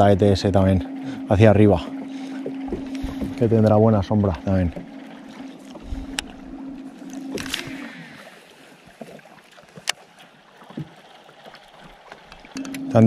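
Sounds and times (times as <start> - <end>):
fishing reel spool whirring: 0.0 - 10.0
boat motor humming: 0.0 - 13.0
sharp clicks: 7.1 - 7.9.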